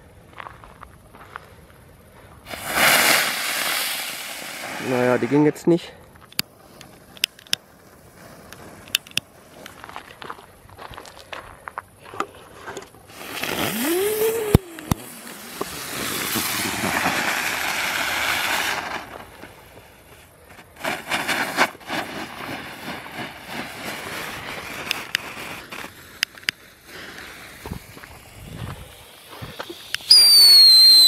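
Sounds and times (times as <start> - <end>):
firework crackles and pops: 2.4 - 11.2, 13.0 - 31.0
firework whistle rising: 2.5 - 5.3, 13.1 - 19.6, 27.7 - 31.0
sizzling hiss of sparks: 2.5 - 5.8, 13.1 - 31.0.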